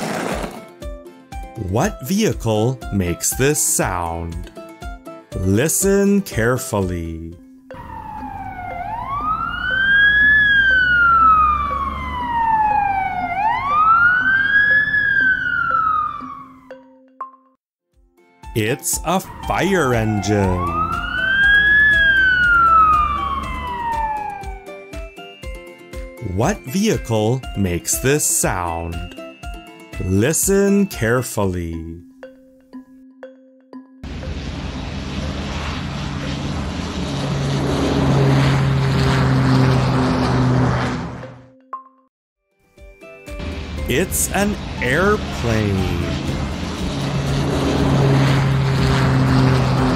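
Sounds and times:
fire engine siren wailing: 7.7 - 16.8, 18.8 - 25.1, 34.1 - 41.4, 43.4 - 49.9
low rumble: 34.0 - 41.3, 43.4 - 49.9
rushing noise: 34.0 - 41.3, 43.4 - 49.9.

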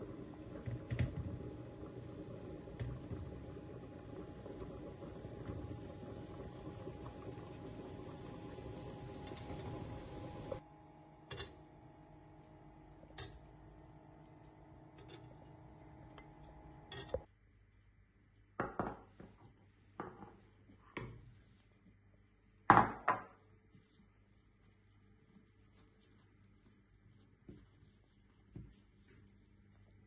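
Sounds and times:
steady hum: 0.0 - 17.2.

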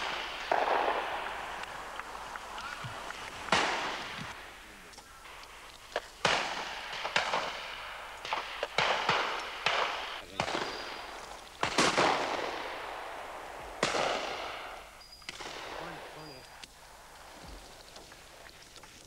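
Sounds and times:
shotgun shots echoing: 0.0 - 4.6, 6.0 - 16.4.

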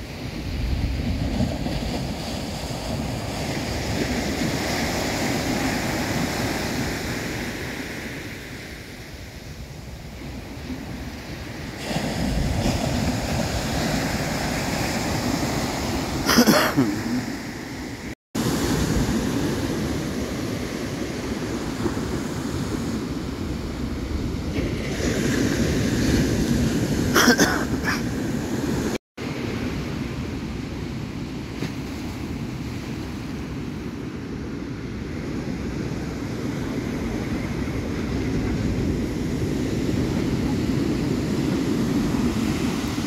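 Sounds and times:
wind rumbling on microphone: 0.0 - 16.2, 28.1 - 43.0
ocean surf on sandy beach: 0.0 - 43.0.

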